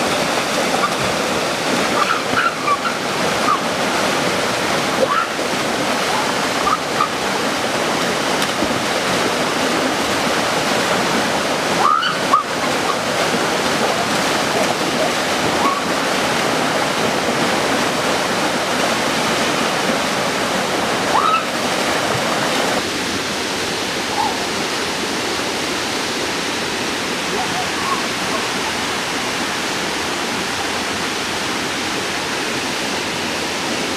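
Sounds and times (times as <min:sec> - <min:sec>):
men splashing in water: 0:00.0 - 0:22.8
waterfall rushing: 0:00.0 - 0:33.9.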